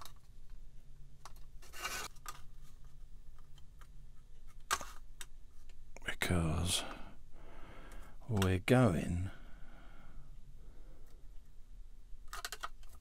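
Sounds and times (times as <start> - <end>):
plastic parts clicking: 1.2 - 2.6, 12.3 - 13.0.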